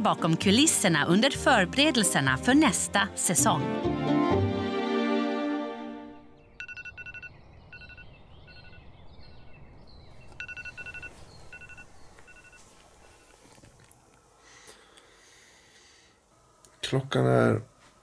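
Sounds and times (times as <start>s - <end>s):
electronic alarm beeping: 6.6s - 8.9s, 10.4s - 13.4s.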